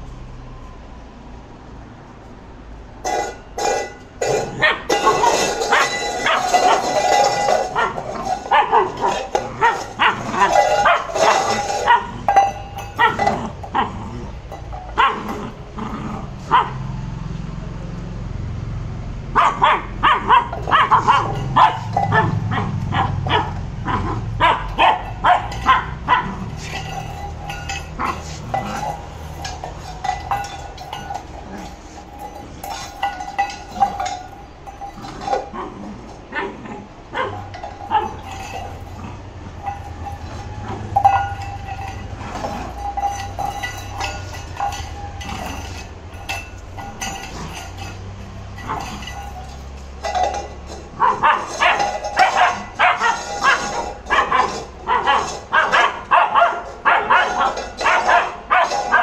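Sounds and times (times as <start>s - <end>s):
metal bowl clanking on tiles: 3.0s - 16.4s, 20.3s - 59.0s
puppy barking: 4.6s - 12.2s, 13.0s - 13.9s, 15.0s - 15.3s, 16.5s - 16.8s, 19.3s - 26.4s, 36.3s - 38.3s, 51.0s - 59.0s.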